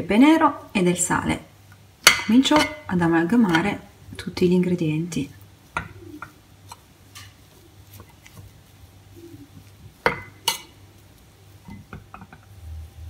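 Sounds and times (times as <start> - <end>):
utensil scraping in metal pot: 5.7 - 10.8.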